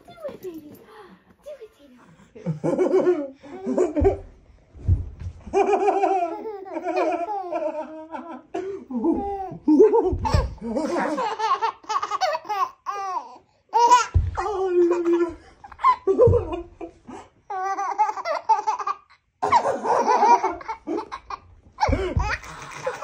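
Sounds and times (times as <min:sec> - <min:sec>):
dull low thumps: 0:03.7 - 0:05.8, 0:09.9 - 0:10.8, 0:14.2 - 0:14.7, 0:15.3 - 0:16.9, 0:21.8 - 0:22.5
baby laughing: 0:05.6 - 0:08.4, 0:09.0 - 0:16.7, 0:17.5 - 0:23.0.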